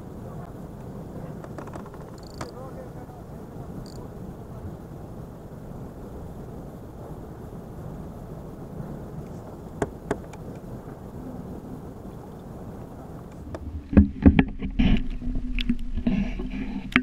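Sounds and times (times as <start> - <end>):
wind: 0.0 - 17.0
sharp clicks: 0.8 - 2.6, 3.8 - 4.0.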